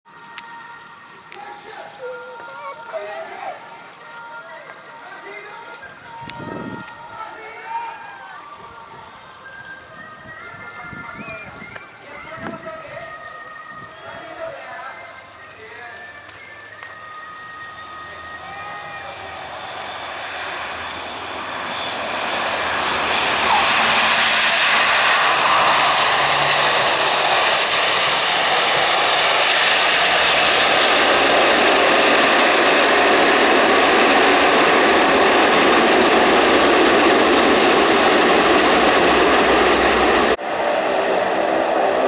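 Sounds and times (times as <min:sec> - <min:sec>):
high turbine whine: 0:00.1 - 0:42.0
turboprop engines roaring: 0:18.0 - 0:42.0.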